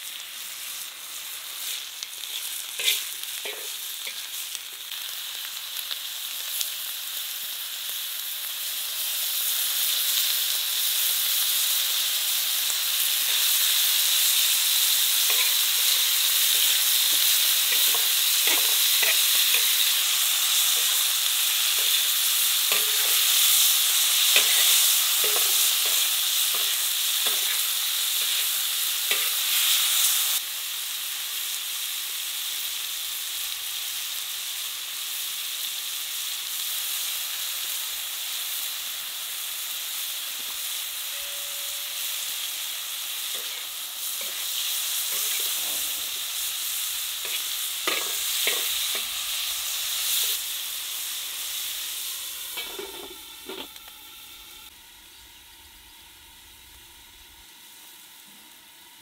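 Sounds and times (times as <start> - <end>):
fat sizzling in a pan: 0.0 - 59.0
metal skimmer scraping a pan: 45.1 - 46.2.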